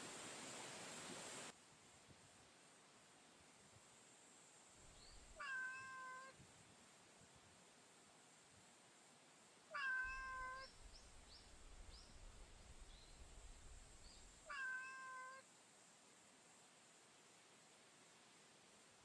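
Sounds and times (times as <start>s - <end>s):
cat meowing: 5.4s - 6.4s, 9.7s - 10.7s, 14.5s - 15.4s.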